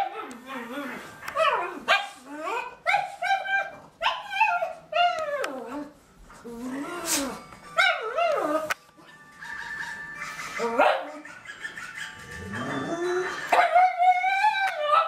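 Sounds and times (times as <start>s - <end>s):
dogs barking and whining: 0.0s - 15.0s
dog yelps: 1.3s - 5.6s, 10.3s - 15.0s.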